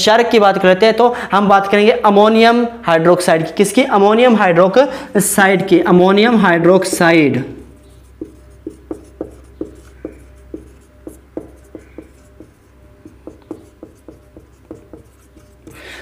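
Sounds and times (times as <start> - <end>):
marker pen squeaking on whiteboard: 6.3 - 16.0
steady low hum: 7.0 - 16.0.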